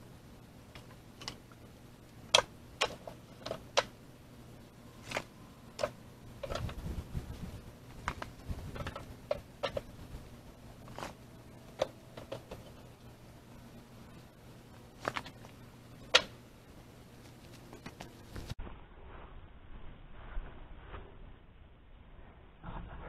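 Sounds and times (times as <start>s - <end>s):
shuffling and handling: 4.9s - 13.1s, 14.0s - 15.8s, 17.0s - 18.6s.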